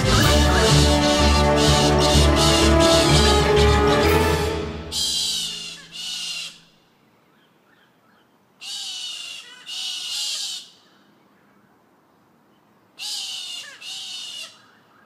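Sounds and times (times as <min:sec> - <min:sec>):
harsh animal screeches: 0:05.0 - 0:06.6.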